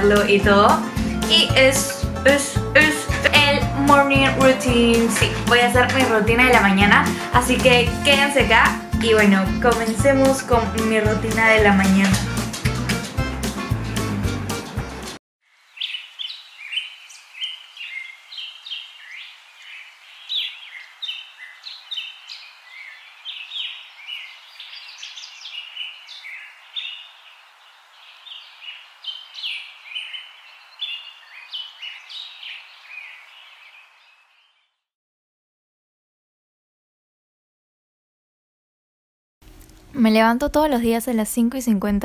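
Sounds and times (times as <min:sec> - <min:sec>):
music: 0:00.0 - 0:15.2
songbirds chirping and singing: 0:15.7 - 0:34.8.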